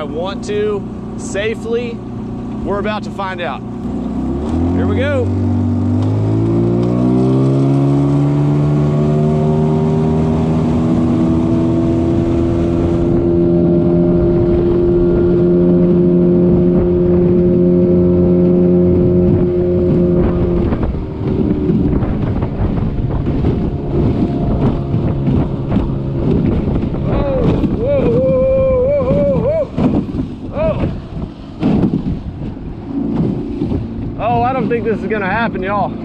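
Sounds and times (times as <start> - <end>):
choppy water: 0.0 - 36.0
outboard motor running: 0.0 - 36.0
wind: 0.0 - 36.0.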